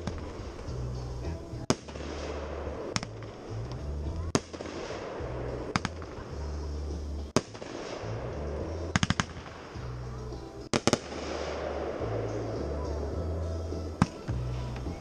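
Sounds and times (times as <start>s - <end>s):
music with deep bass line: 0.0s - 15.0s
fireworks bangs: 1.6s - 10.0s, 10.7s - 12.9s.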